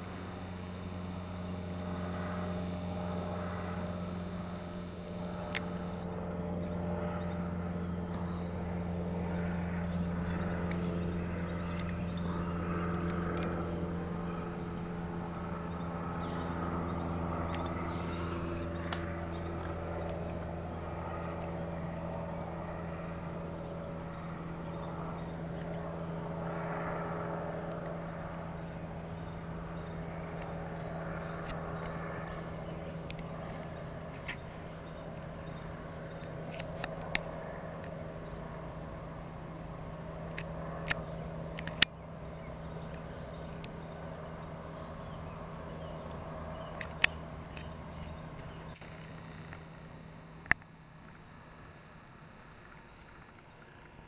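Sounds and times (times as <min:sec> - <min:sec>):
helicopter droning by: 0:00.0 - 0:54.0
sharp clicks: 0:00.1 - 0:06.1, 0:10.2 - 0:13.6, 0:32.8 - 0:38.0, 0:40.3 - 0:41.9, 0:46.0 - 0:54.0.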